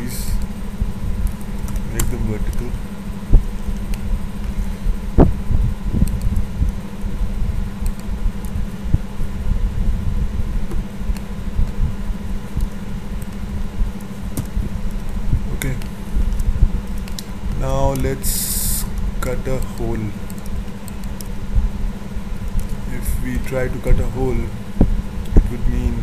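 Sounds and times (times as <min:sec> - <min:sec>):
microphone background rumble: 0:00.0 - 0:26.0.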